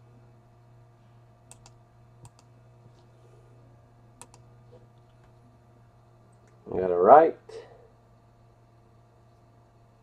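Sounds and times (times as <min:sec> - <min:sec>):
low electrical hum: 0:00.0 - 0:10.0
computer mouse clicks: 0:01.5 - 0:02.5, 0:04.2 - 0:05.4.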